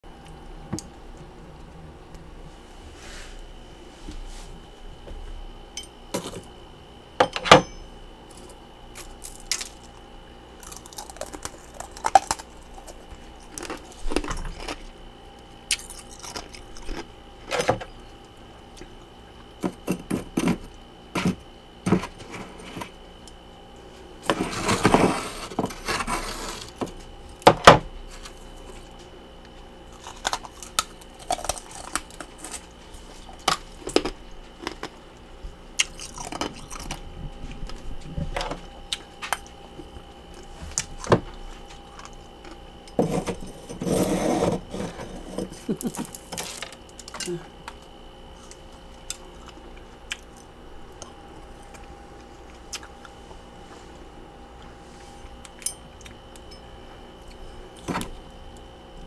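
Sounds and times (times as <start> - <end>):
metal spoon scraping frost: 43.0 - 45.5.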